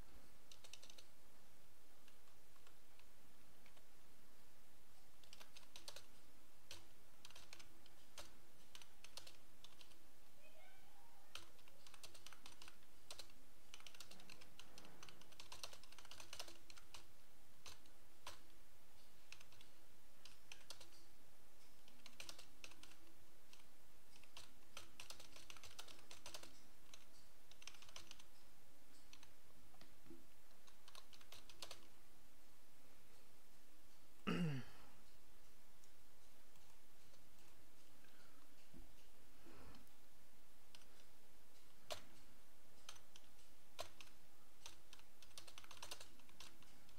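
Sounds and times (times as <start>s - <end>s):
faint background hiss: 0.0s - 46.9s
typing on a keyboard: 0.5s - 1.1s, 5.2s - 10.0s, 11.3s - 21.1s, 21.8s - 28.4s, 29.0s - 29.9s, 30.5s - 32.0s, 40.7s - 46.9s.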